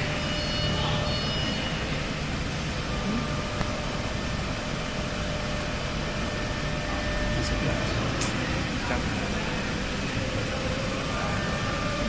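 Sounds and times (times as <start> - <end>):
faint high whine: 0.0 - 12.0
workshop machinery hum and hiss: 0.0 - 12.0.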